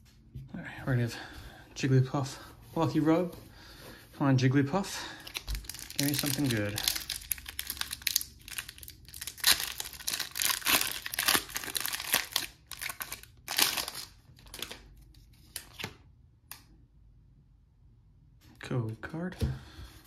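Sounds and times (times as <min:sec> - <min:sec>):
foil wrapper crinkling and tearing: 0:05.2 - 0:14.9.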